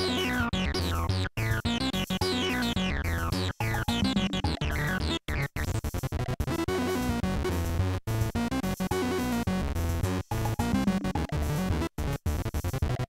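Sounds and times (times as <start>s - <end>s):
analogue synthesizer sequence: 0.0s - 5.7s.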